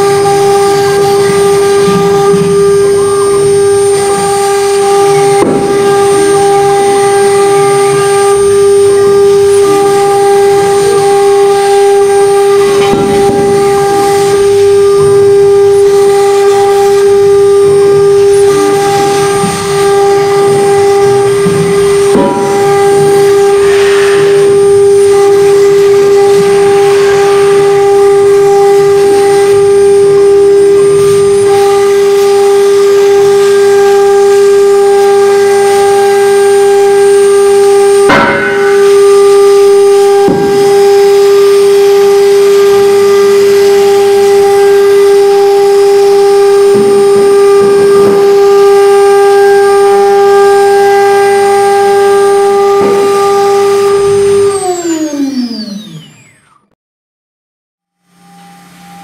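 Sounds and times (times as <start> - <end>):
router spindle whine: 0.0 - 56.8, 57.9 - 59.0
hiss: 17.7 - 36.2
sharp knock: 38.1 - 39.3.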